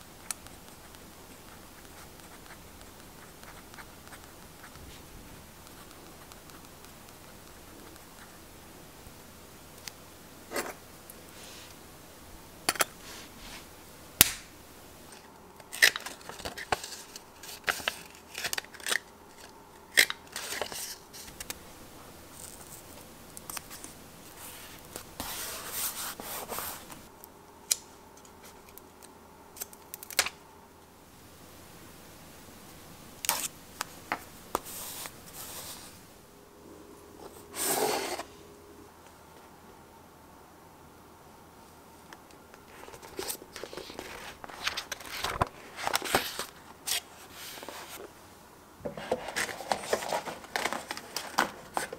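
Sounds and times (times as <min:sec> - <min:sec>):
paper rustling and scraping: 0:15.7 - 0:21.6, 0:23.6 - 0:27.1, 0:37.2 - 0:38.3, 0:42.7 - 0:48.1, 0:48.9 - 0:51.9
book pulled from shelf: 0:37.5 - 0:38.3.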